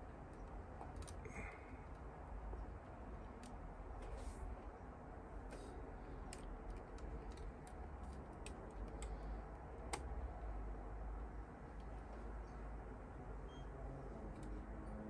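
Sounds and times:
low steady hum: 0.0 - 15.0
plastic parts clicking and tapping: 0.2 - 1.2, 6.2 - 10.2.

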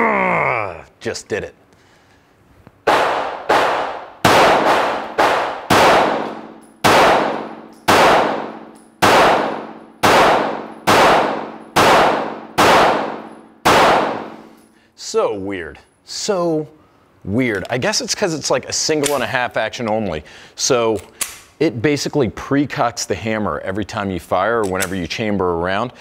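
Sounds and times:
pistol shots indoors: 2.8 - 14.8.

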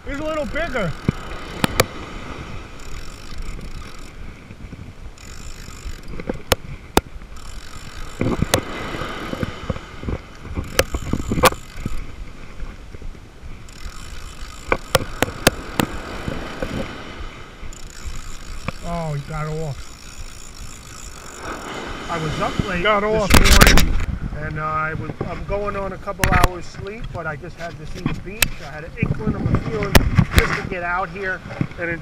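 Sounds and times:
fishing reel gear whir: 0.0 - 23.9
reel clicks: 0.0 - 24.1, 26.0 - 30.6
surf wash: 0.0 - 32.0
wind on microphone: 0.0 - 32.0.

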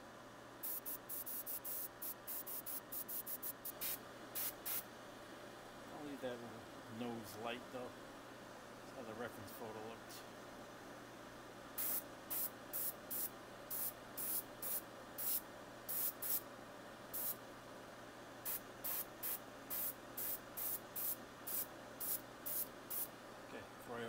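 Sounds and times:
steady low hum: 0.0 - 24.0
airbrush spraying hiss: 0.6 - 4.9, 11.8 - 16.4, 17.2 - 17.4, 18.4 - 23.1.

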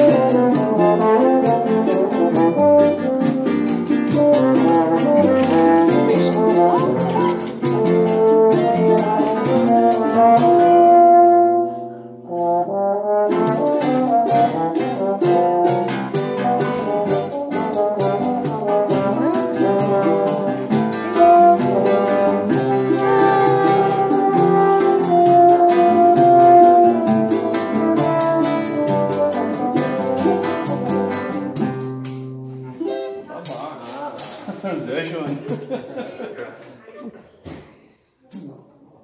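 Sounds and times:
french horn melody: 0.0 - 31.8
acoustic guitars strumming: 0.0 - 34.4
pandeiro strokes: 0.1 - 10.6.

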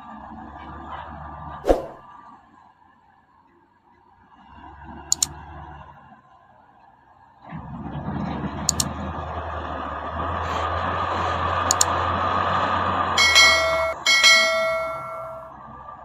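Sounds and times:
diesel engine under load: 7.6 - 16.0
sharp clicks: 11.7 - 11.9.

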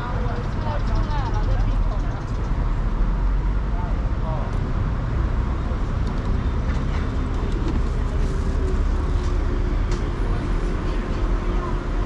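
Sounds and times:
cars and buses passing: 0.0 - 12.0.

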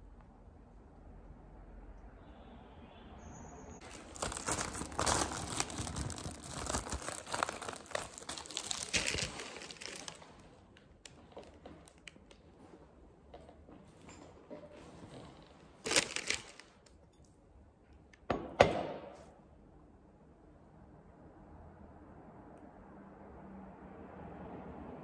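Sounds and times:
plastic bag crinkling: 3.8 - 12.4, 15.8 - 17.0.

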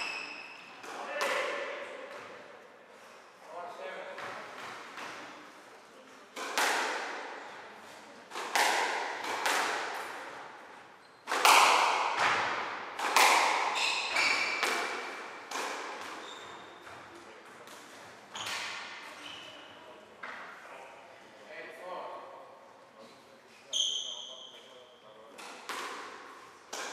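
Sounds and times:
squash ball cracks echoing: 0.7 - 2.3, 6.4 - 7.4, 8.3 - 10.5, 11.2 - 16.2, 25.4 - 26.9
shoes squeaking on wooden floor: 13.7 - 14.6, 16.2 - 16.8.

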